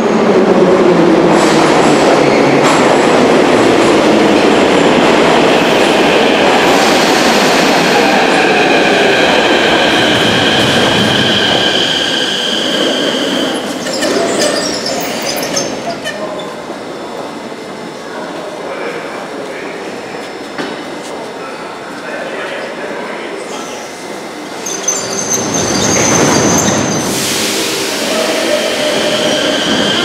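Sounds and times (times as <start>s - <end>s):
high squeal of brakes: 11.2s - 16.6s, 24.6s - 30.0s
train wheels rumbling on rails: 24.5s - 30.0s.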